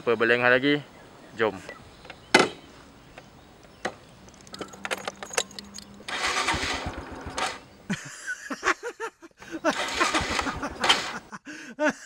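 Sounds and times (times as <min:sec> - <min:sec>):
motorcycle engine starting: 0:04.2 - 0:07.8, 0:09.6 - 0:11.3
keys jingling: 0:04.3 - 0:06.1.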